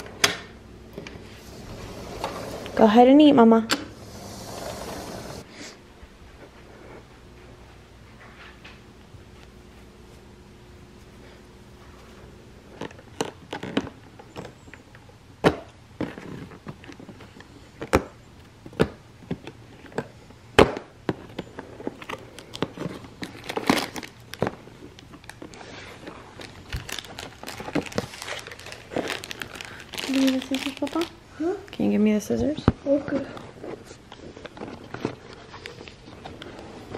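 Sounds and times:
packaging crinkling: 21.2 - 31.2.

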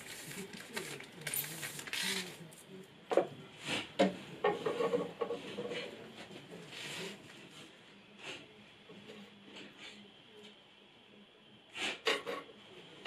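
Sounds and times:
rustling handling noise: 0.0 - 2.7.

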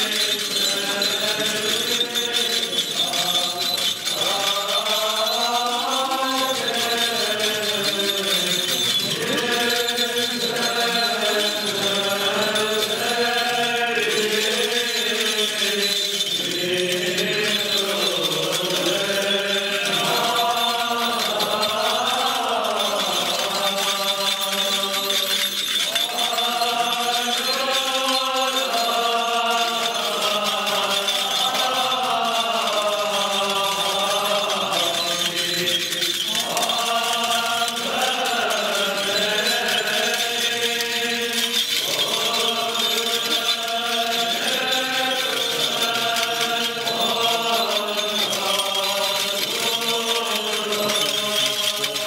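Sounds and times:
voices chanting a slow hymn: 0.0 - 52.0.

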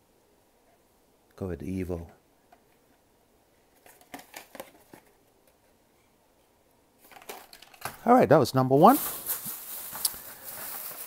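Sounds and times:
plastic packaging clicking and crinkling: 3.8 - 5.6, 7.0 - 8.1, 8.8 - 11.0.

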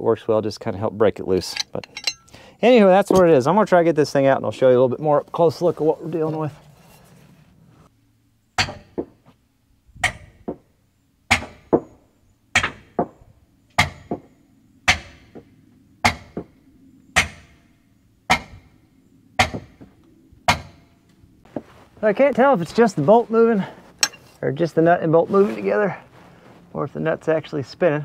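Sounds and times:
hammer striking steel wrench: 1.4 - 2.4, 24.0 - 24.3.

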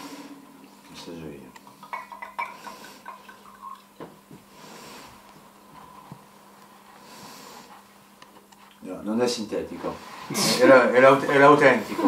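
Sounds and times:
liquor glugging from a bottle: 1.8 - 4.0.

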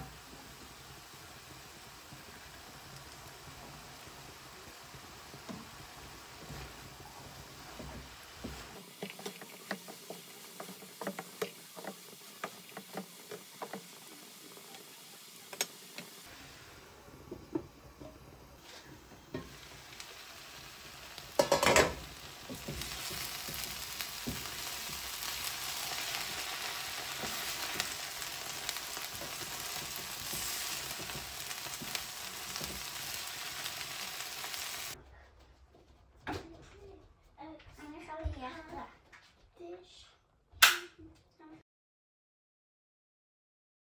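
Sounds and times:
food sizzling in a pan: 0.0 - 35.0
wooden spoon scraping a frying pan: 5.5 - 16.6, 18.6 - 19.7, 21.2 - 35.0.

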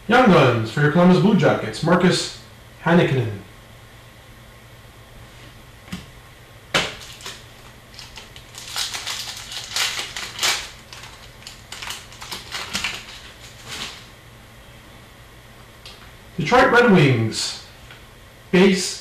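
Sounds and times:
trading cards crackling and rustling: 6.8 - 14.1.

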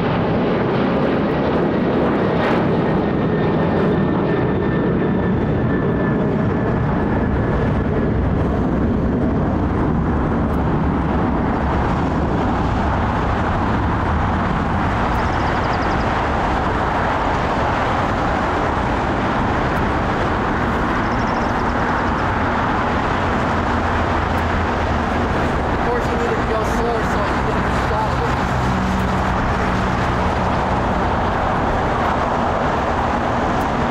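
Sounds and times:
loud engine rumble: 0.0 - 33.9.

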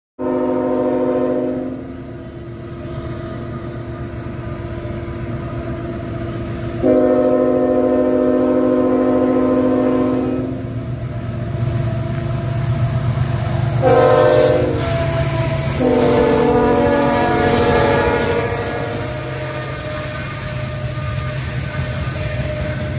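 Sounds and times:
locomotive air horn blasts: 0.2 - 2.1, 6.8 - 10.8, 13.7 - 22.9
diesel locomotive rumble: 0.2 - 22.9.

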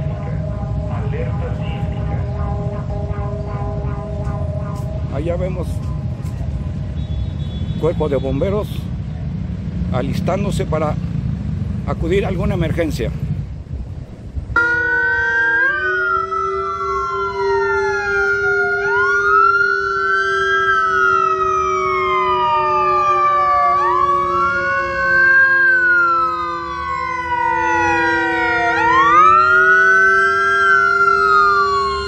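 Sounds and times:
emergency sirens wailing: 0.0 - 7.0, 14.5 - 32.0.

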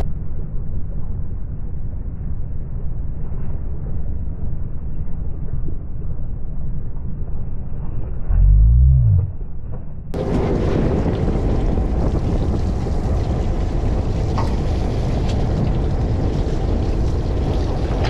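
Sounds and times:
deep muffled rumble: 0.0 - 18.0.

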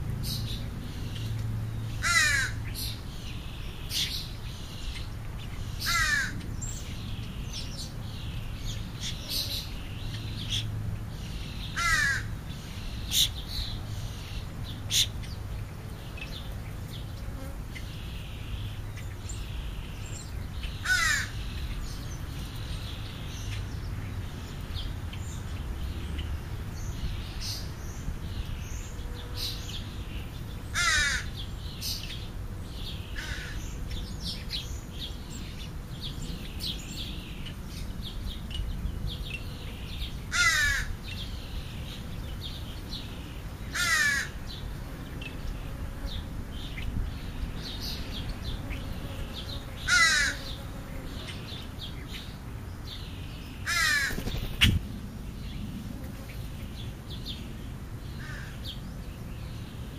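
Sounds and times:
small birds chirping: 0.0 - 59.9
crow cawing: 2.0 - 2.6, 5.9 - 6.4, 11.8 - 12.3, 20.8 - 21.3, 30.8 - 31.3, 33.2 - 33.6, 40.3 - 40.9, 43.8 - 44.4, 49.9 - 50.4, 53.7 - 54.3.

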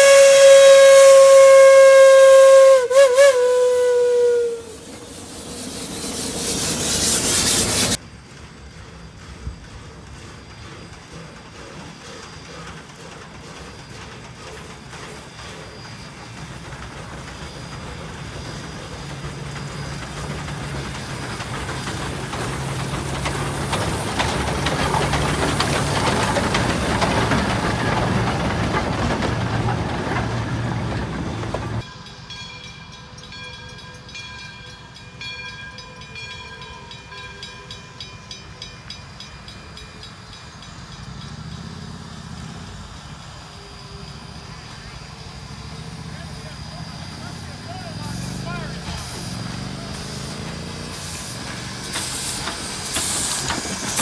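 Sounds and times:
train wheels clicking over rail joints: 4.8 - 31.9, 38.8 - 54.0.

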